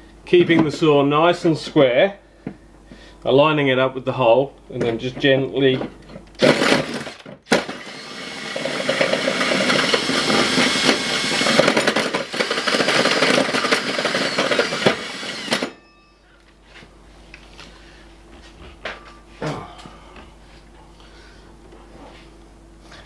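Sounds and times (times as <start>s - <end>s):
hole saw cutting steel: 6.4s - 15.8s.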